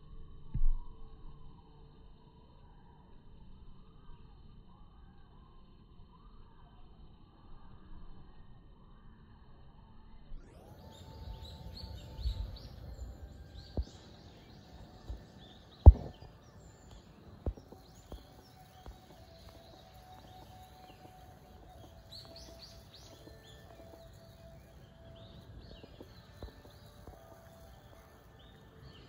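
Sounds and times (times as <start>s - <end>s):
small birds chirping: 10.5s - 29.0s
sharp knocks: 15.8s - 16.3s.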